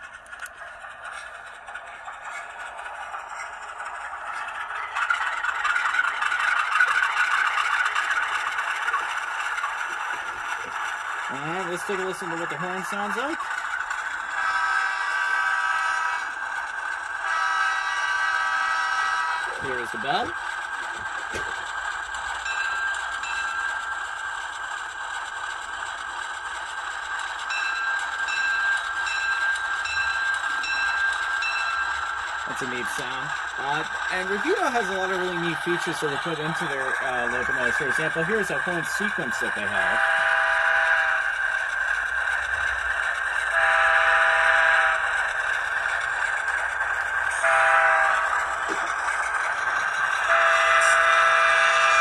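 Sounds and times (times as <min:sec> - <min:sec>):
diesel locomotive idle from speaker: 0:00.0 - 0:52.0
model diesel engine sound from speaker: 0:09.9 - 0:13.5, 0:17.2 - 0:21.8, 0:32.4 - 0:41.0
locomotive bell ringing: 0:11.3 - 0:13.5, 0:17.2 - 0:24.4, 0:27.1 - 0:41.5, 0:43.3 - 0:52.0.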